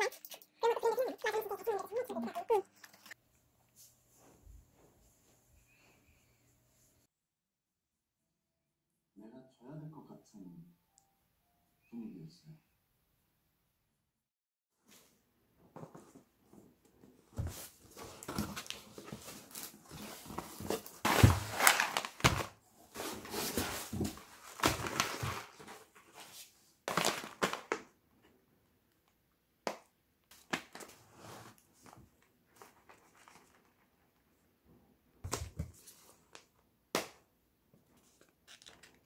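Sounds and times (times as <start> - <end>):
cardboard and paper bags rustling: 17.2 - 27.8.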